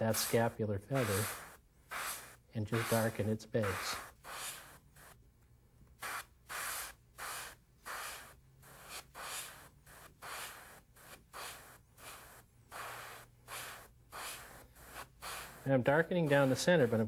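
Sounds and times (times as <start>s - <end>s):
airbrush spraying in hissing bursts: 0.0s - 5.2s, 6.0s - 17.0s.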